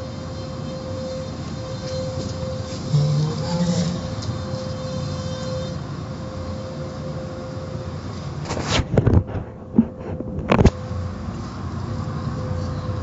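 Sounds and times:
car wash machinery and spray rumble: 0:00.0 - 0:13.0
faint constant hum: 0:00.0 - 0:13.0.

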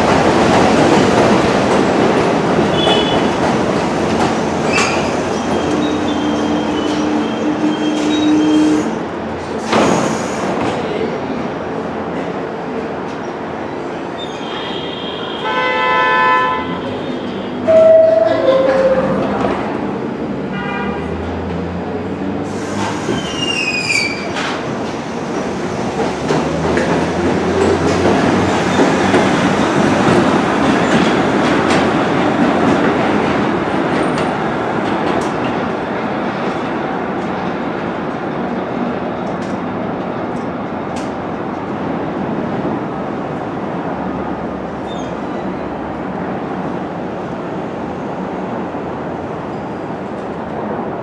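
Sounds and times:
train rumbling on steel track: 0:00.0 - 0:51.0.

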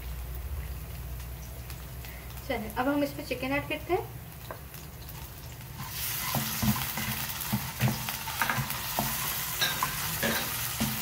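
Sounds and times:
chicken sizzling in hot oil: 0:00.0 - 0:11.0
spatula scraping and knocking pan: 0:05.8 - 0:11.0.

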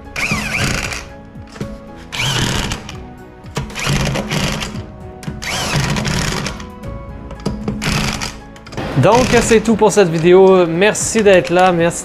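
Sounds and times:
electric impact wrench: 0:00.2 - 0:01.1, 0:02.1 - 0:03.0, 0:03.6 - 0:04.8, 0:05.4 - 0:06.6, 0:07.8 - 0:09.6.

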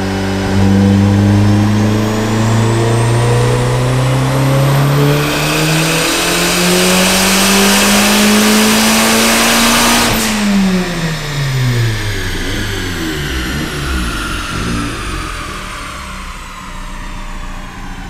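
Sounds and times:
car engine revving at full throttle: 0:00.0 - 0:18.0
sharp crack off throttle: 0:09.4 - 0:17.9.

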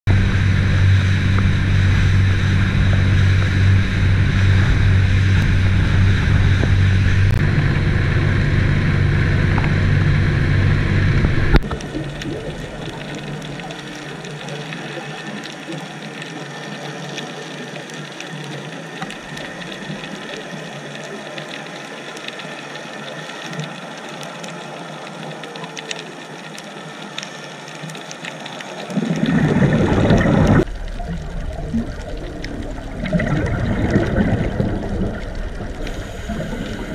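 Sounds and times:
water rushing past hull: 0:00.1 - 0:15.5, 0:28.6 - 0:36.9
motorboat engine: 0:00.1 - 0:17.1, 0:29.2 - 0:36.9
underwater crackle of clicks: 0:02.2 - 0:07.5, 0:09.4 - 0:10.2, 0:11.0 - 0:36.9.

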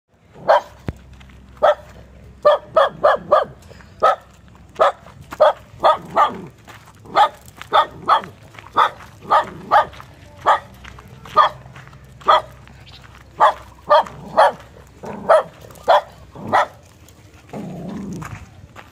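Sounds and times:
dog barking: 0:00.4 - 0:00.8, 0:01.6 - 0:06.5, 0:07.1 - 0:10.7, 0:11.3 - 0:11.6, 0:12.2 - 0:12.6, 0:13.4 - 0:16.8.

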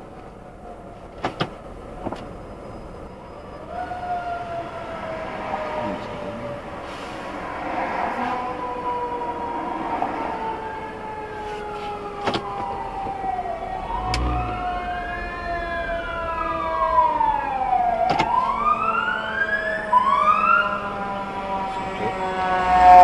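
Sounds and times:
fire truck siren wailing: 0:02.7 - 0:23.0
steady tone: 0:13.6 - 0:18.0, 0:21.8 - 0:23.0.

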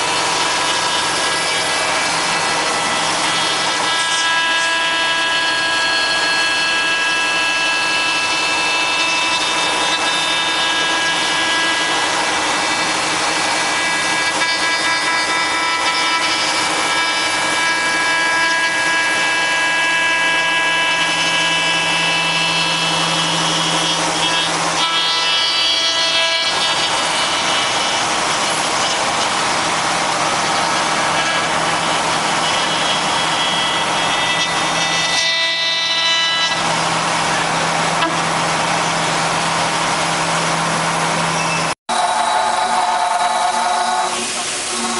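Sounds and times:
cutter rasping wood: 0:00.0 - 0:41.0
cnc router spindle whine: 0:00.0 - 0:44.9.

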